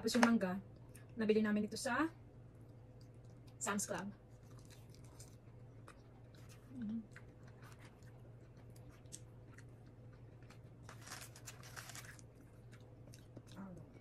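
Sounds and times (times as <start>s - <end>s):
faint chewing: 4.2s - 14.0s.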